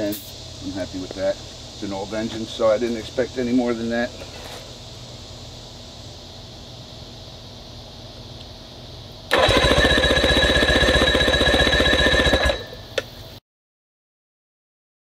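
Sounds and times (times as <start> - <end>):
outboard engine cranking: 9.3 - 12.6.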